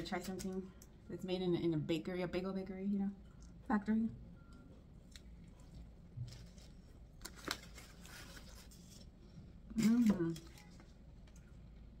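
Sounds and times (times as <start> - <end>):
paper wrapper rustling: 6.3 - 9.1.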